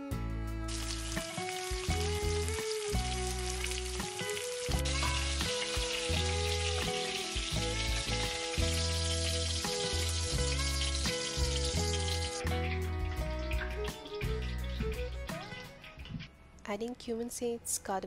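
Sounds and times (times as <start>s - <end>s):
soft background music: 0.0s - 18.0s
fish sizzling in hot oil: 0.7s - 15.0s.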